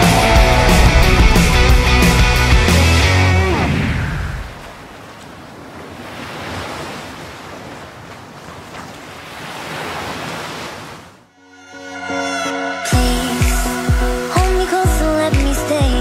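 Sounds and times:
ocean waves rushing: 0.0s - 11.3s.

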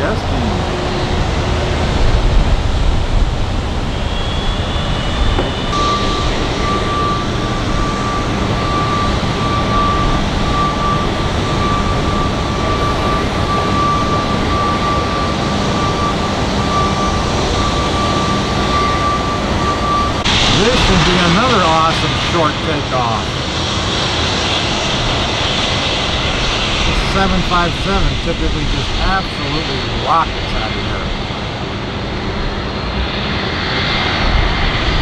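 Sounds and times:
high jet whine: 0.0s - 35.0s
jet aircraft low rumble: 0.0s - 35.0s.

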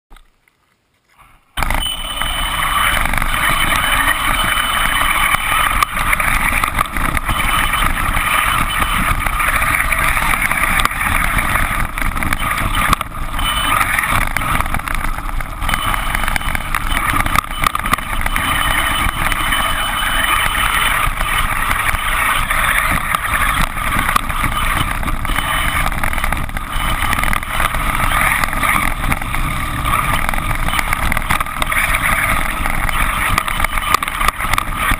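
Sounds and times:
electric motor whine: 1.6s - 34.9s.

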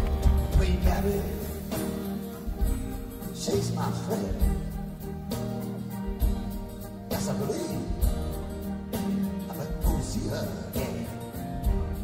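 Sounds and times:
drum hits: 0.0s - 3.3s
live band playing: 0.0s - 12.0s.

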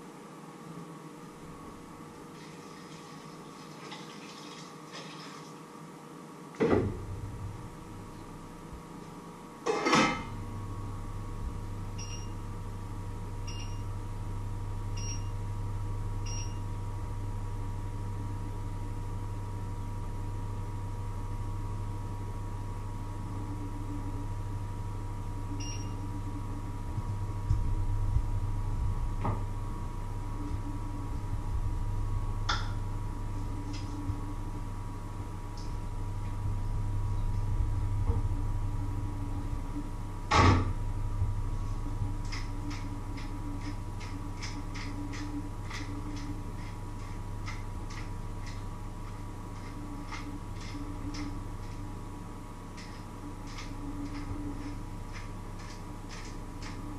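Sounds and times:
electrical hum: 0.0s - 56.9s
appliance high beeps: 12.0s - 12.4s, 13.4s - 13.9s, 15.0s - 15.4s, 25.6s - 26.0s.

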